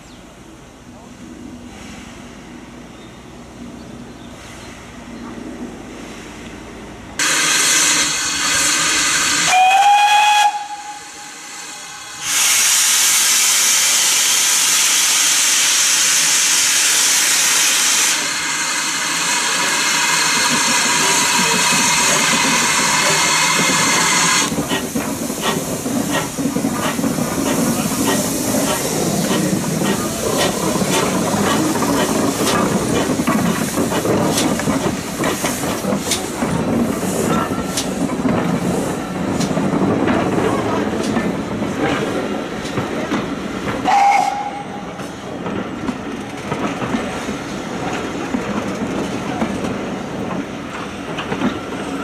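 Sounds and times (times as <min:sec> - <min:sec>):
loud steam hiss: 0:04.3 - 0:46.1
rising steam whistle: 0:07.2 - 0:18.8, 0:43.8 - 0:44.9.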